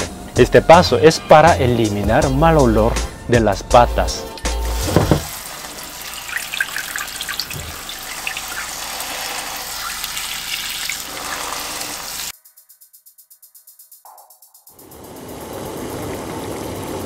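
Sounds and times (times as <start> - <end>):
tap water splashing into pot: 4.9 - 8.8.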